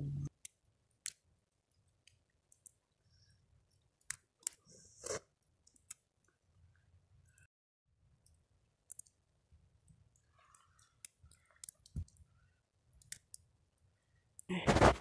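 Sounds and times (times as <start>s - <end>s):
faint clicks and crackles: 0.3s - 4.7s, 5.4s - 7.5s, 8.2s - 14.5s.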